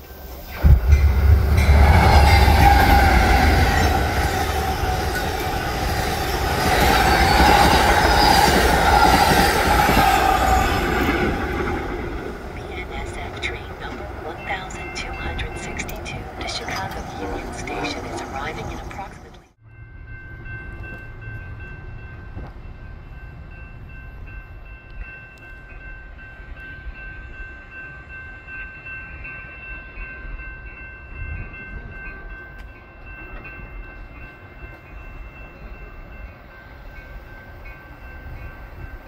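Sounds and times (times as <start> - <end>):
distant train rumbling: 0.0 - 39.0
high-pitched tones: 12.6 - 19.6.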